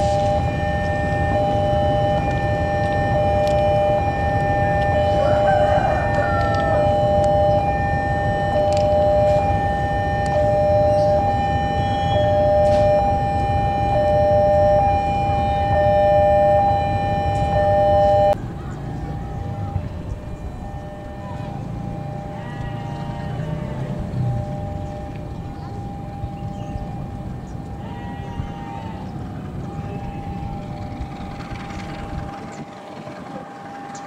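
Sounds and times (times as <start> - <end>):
outdoor background noise: 0.0 - 34.0
train rumble: 0.0 - 34.0
high-pitched two-note squeal: 19.2 - 32.4.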